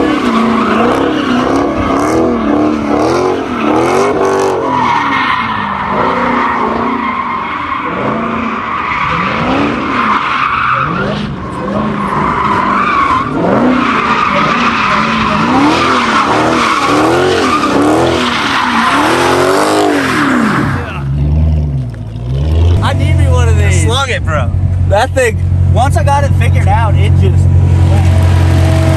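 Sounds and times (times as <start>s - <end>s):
car engine revving: 0.0s - 28.9s
car engine idling: 20.4s - 28.9s.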